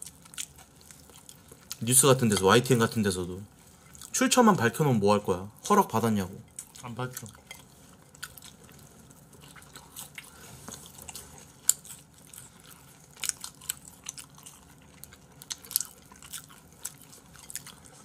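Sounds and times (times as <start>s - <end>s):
wet chewing mouth sounds: 0.0s - 2.5s, 6.5s - 18.0s.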